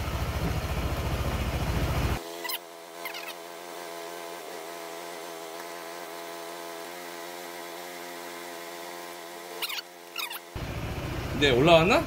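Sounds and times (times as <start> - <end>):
scooter engine idling: 0.0 - 2.2, 9.6 - 12.0.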